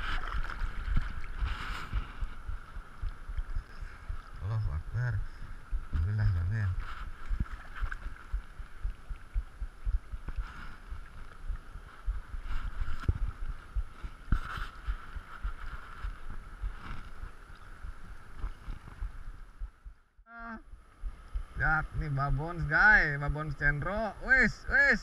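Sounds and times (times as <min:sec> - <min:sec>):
seawater sloshing while wading: 0:00.0 - 0:04.4, 0:06.8 - 0:19.1
low thumps: 0:00.0 - 0:22.4.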